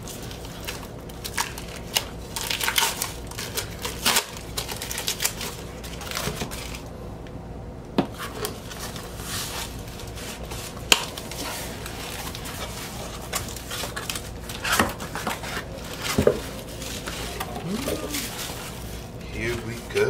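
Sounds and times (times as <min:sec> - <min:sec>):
cardboard rustling and scraping: 0:08.1 - 0:20.0.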